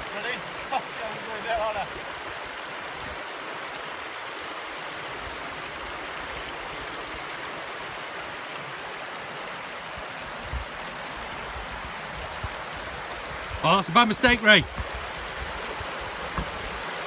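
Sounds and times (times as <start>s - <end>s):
stream rushing over rocks: 0.0s - 17.0s
low thud: 16.3s - 16.7s.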